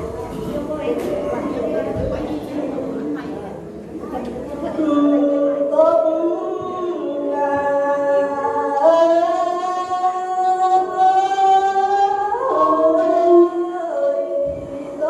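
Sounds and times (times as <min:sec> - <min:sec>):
woman singing through loudspeaker: 0:00.0 - 0:15.0.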